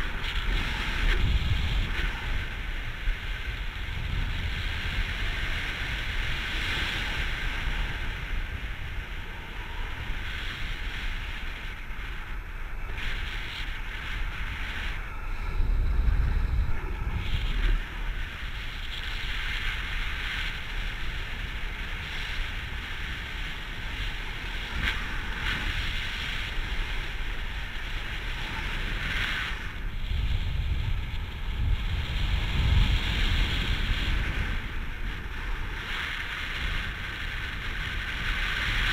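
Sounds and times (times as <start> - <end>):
wind rushing over microphone: 0.0 - 38.9.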